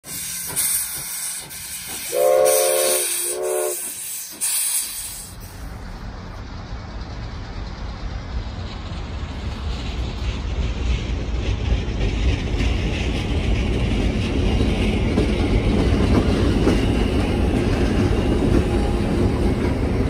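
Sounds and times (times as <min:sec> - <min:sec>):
steam locomotive hissing: 0:00.0 - 0:20.0
steam whistle blasts: 0:00.7 - 0:04.9.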